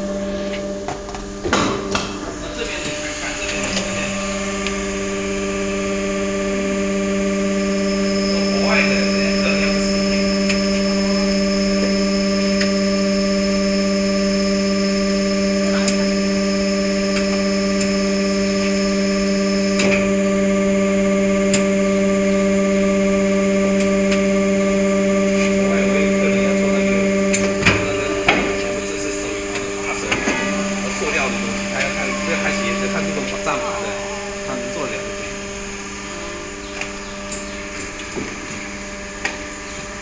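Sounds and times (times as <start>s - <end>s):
molding machine humming: 0.0s - 40.0s.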